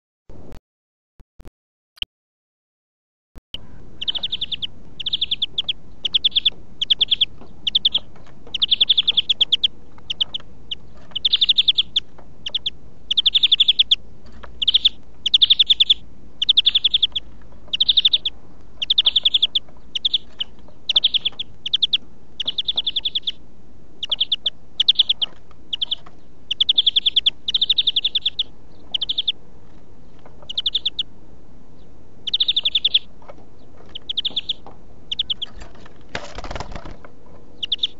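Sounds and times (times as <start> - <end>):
bird trilling song: 3.6 - 23.4, 24.0 - 31.1, 31.7 - 37.9.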